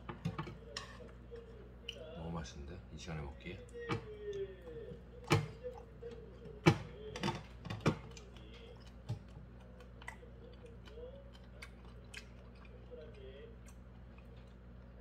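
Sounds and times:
chewing clicks: 7.3s - 15.0s.

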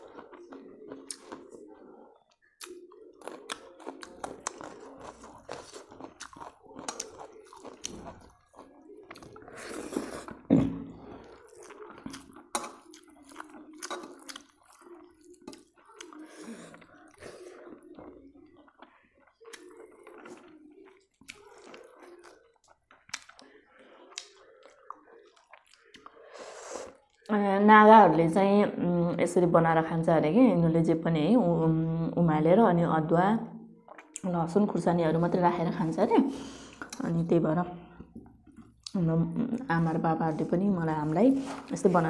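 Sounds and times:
chewing and crunching: 0.0s - 27.3s, 33.8s - 34.3s, 37.8s - 39.0s.

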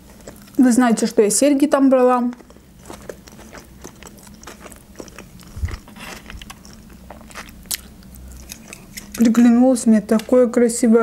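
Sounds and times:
close-miked chewing food: 0.0s - 0.7s, 2.0s - 9.3s.

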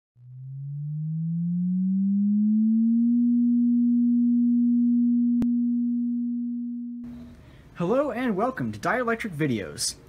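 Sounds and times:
rising electronic tone: 0.2s - 7.4s.

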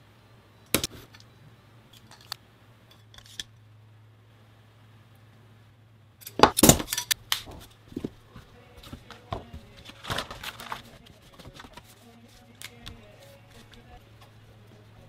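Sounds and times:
faint low hum: 0.0s - 15.0s
metal clinks and knocks: 6.2s - 7.7s
paper sheets handled: 7.3s - 14.4s.

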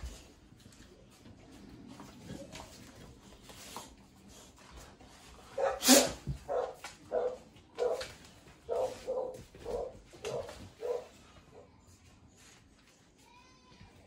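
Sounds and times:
puppy barking: 5.6s - 8.1s, 8.7s - 11.2s.

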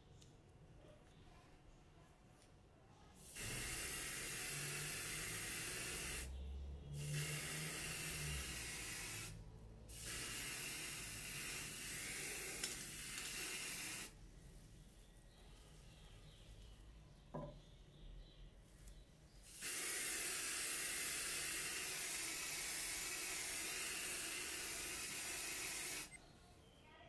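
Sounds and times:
spray paint can hissing: 3.2s - 6.3s, 7.0s - 14.2s, 19.5s - 26.2s.

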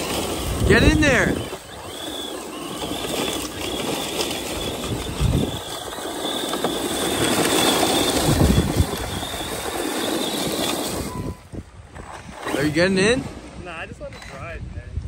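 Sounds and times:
tyres spraying grit: 0.0s - 11.3s, 12.2s - 14.1s
electric motor whining: 0.0s - 13.5s.

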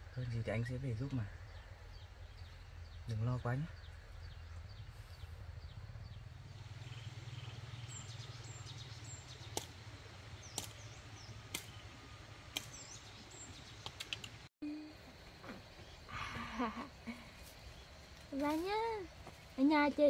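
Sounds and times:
low steady rumble: 0.0s - 13.8s.

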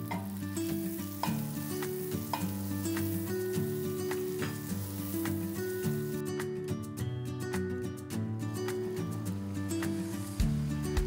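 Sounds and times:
butter sizzling in a pan: 0.0s - 6.2s
background music: 0.0s - 11.0s.

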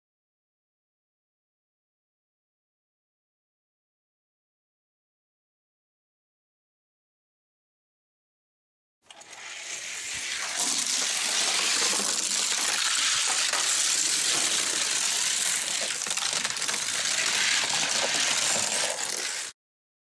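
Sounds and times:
toy cars rolling on a track: 9.1s - 19.6s.

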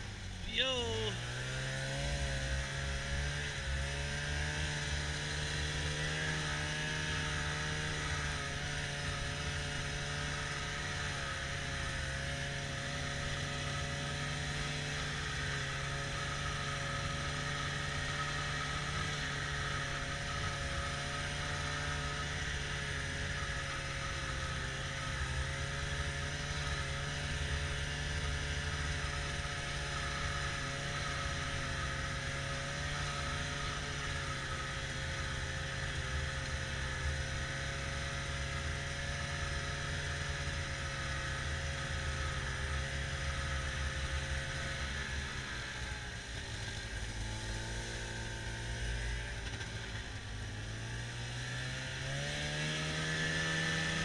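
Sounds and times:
snowmobile engine running: 0.0s - 54.0s.

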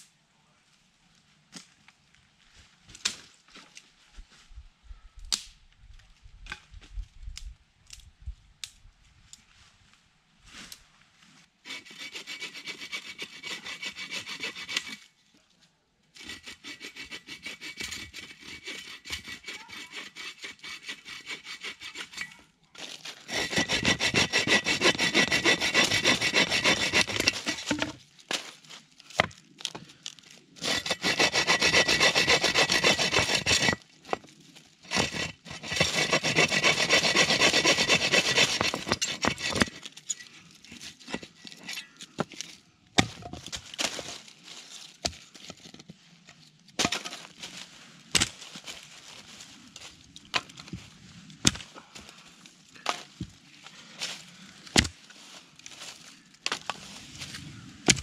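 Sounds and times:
hand saw cutting branches: 11.6s - 15.1s, 16.2s - 22.4s, 23.2s - 28.0s, 30.6s - 40.0s, 40.7s - 43.2s, 51.4s - 51.9s, 54.7s - 55.0s.

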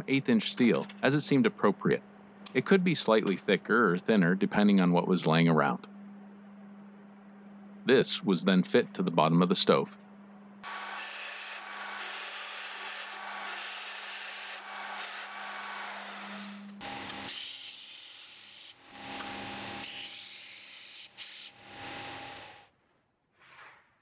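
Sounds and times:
band saw cutting steel: 10.6s - 22.6s
belt sander grinding steel: 10.6s - 22.6s.

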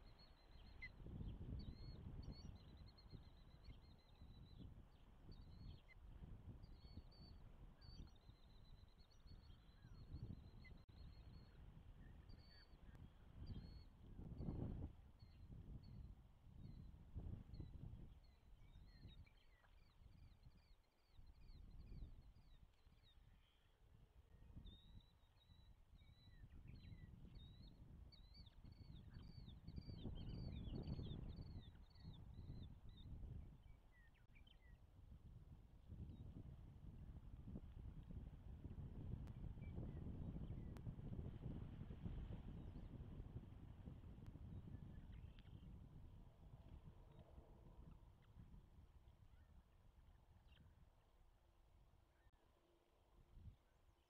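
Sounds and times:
small birds chirping: 0.0s - 14.0s, 44.5s - 48.6s
wind rumble on microphone: 0.0s - 52.3s, 53.2s - 53.7s.

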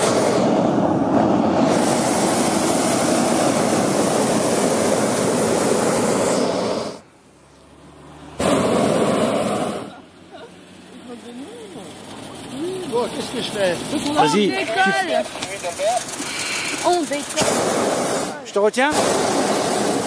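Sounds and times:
propane burner blast: 0.0s - 7.6s, 8.2s - 10.0s, 15.3s - 20.0s.

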